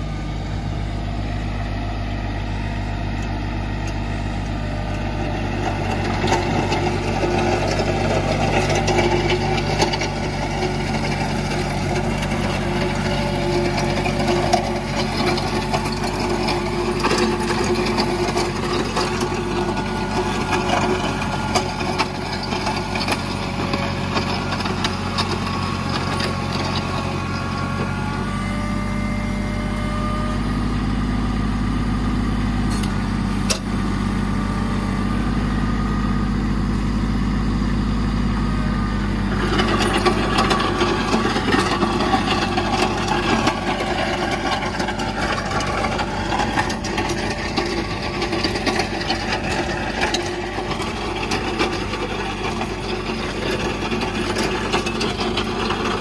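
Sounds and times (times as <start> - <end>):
tractor diesel engine running: 0.0 - 56.0
blade scraping gravel: 5.1 - 28.0, 39.3 - 56.0.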